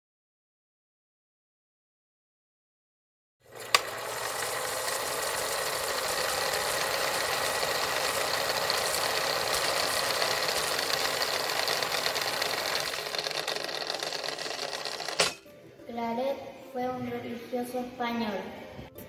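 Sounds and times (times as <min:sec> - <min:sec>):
film projector clattering: 0:03.5 - 0:15.4
projector starting click: 0:03.6 - 0:04.6.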